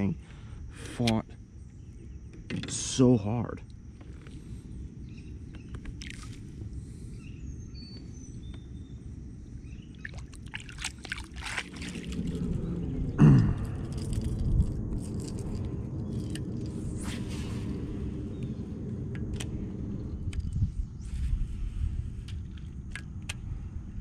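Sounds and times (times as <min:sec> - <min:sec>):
low steady rumble: 0:00.0 - 0:24.0
faint bird chirps: 0:04.2 - 0:10.4
fishing rod swishing through air: 0:16.8 - 0:18.0.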